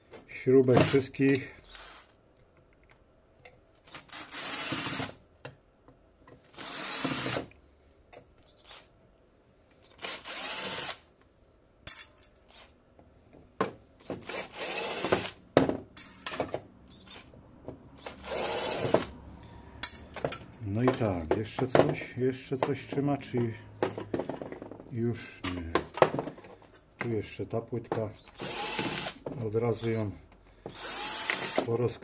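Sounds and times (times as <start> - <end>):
cordless drill motor: 1.7 - 2.1, 4.1 - 5.2, 6.5 - 7.5, 9.8 - 11.0, 14.2 - 15.4, 18.0 - 19.2, 28.2 - 29.2, 30.6 - 31.7.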